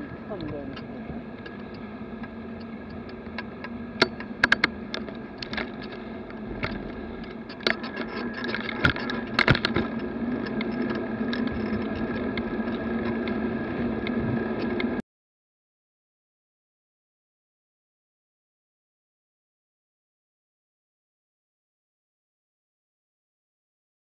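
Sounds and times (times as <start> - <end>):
bike knocking and rattling over bumps: 0.0 - 15.0
road and traffic noise: 0.0 - 15.0.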